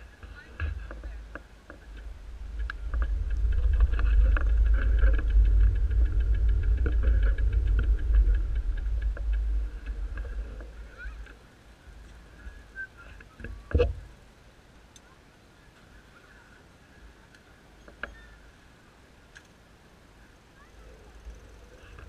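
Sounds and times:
wind buffeting microphone: 0:00.0 - 0:14.1.

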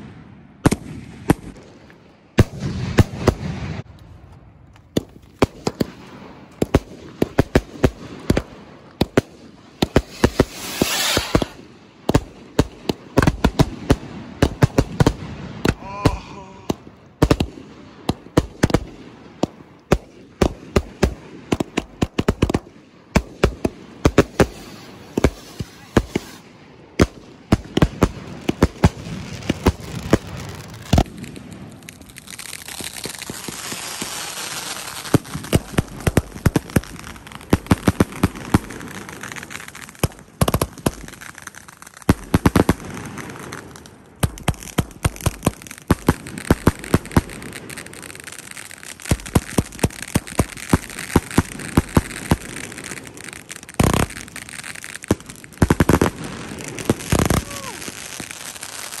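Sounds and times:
fireworks bangs and crackling: 0:00.0 - 0:59.0
fireworks fountain hissing: 0:09.8 - 0:11.7, 0:24.0 - 0:26.6, 0:27.9 - 0:40.0, 0:40.6 - 0:59.0.

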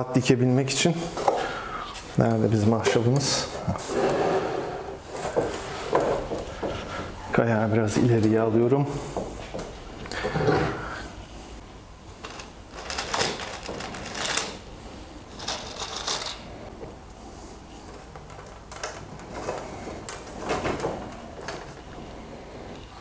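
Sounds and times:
wires rustling: 0:12.0 - 0:23.0.

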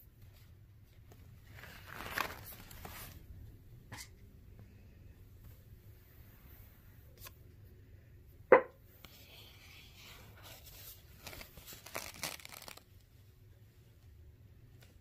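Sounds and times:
felt flap rustling and scraping: 0:00.2 - 0:03.3.

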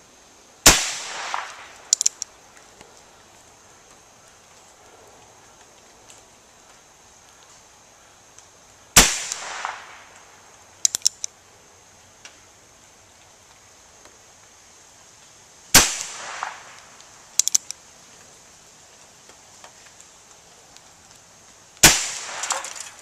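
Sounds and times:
faint sharp clicks: 0:01.3 - 0:03.1, 0:03.9 - 0:07.6, 0:08.3 - 0:08.6, 0:09.3 - 0:11.4, 0:16.4 - 0:18.3.

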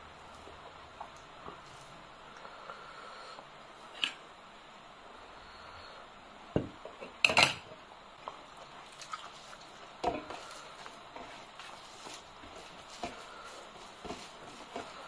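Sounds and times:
rice mixed by hand: 0:08.2 - 0:15.0.

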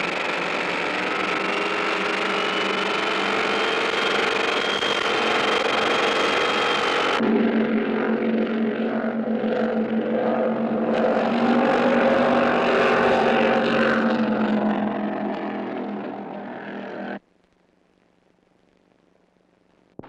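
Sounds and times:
boat engines running: 0:09.5 - 0:17.2.

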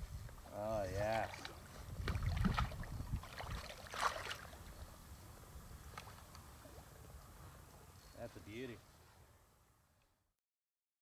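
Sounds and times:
fish splashing in water: 0:01.2 - 0:04.6.

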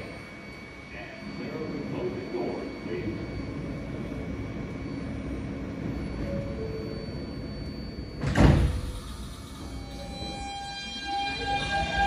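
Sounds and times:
standing train humming: 0:00.0 - 0:12.0
sliding doors shutting with thump: 0:08.2 - 0:09.7.

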